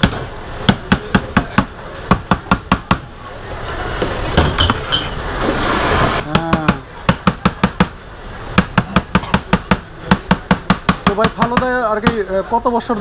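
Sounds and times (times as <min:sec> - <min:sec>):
soft scraping: 0:04.8 - 0:06.3.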